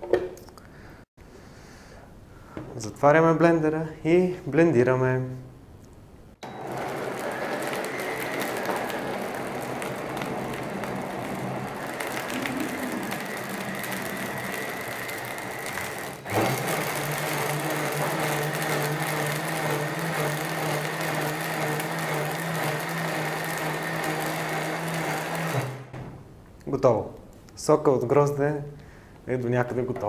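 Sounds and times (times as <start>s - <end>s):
blender running: 6.4s - 25.9s.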